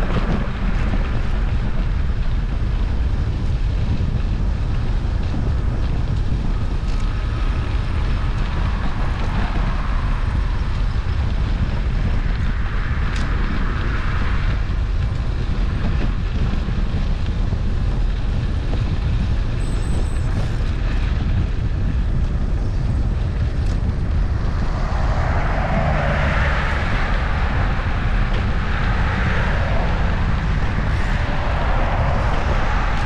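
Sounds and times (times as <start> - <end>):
wind rumbling on microphone: 0.0 - 33.0
rushing noise: 22.4 - 33.0.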